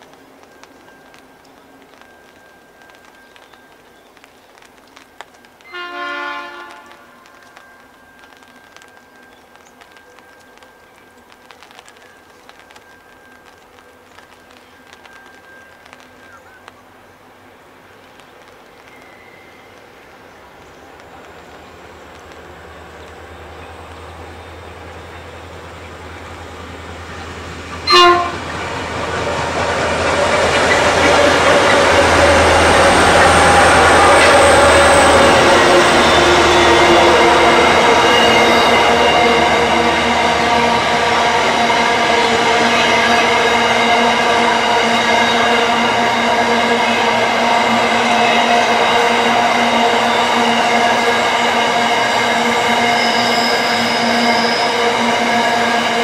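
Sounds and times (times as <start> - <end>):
train rumbling: 0.0 - 56.0
locomotive horn blast: 5.6 - 7.6, 27.8 - 28.6, 30.0 - 56.0.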